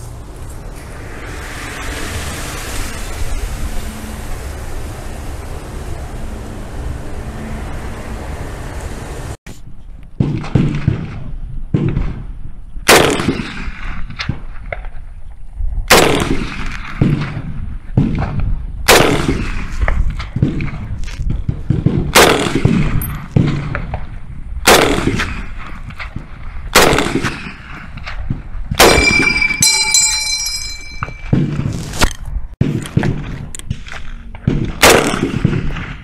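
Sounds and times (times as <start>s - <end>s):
rifle shots with echo: 12.9s - 14.4s, 24.7s - 25.4s, 26.8s - 27.6s, 34.4s - 36.0s
high metallic ping: 28.8s - 31.4s.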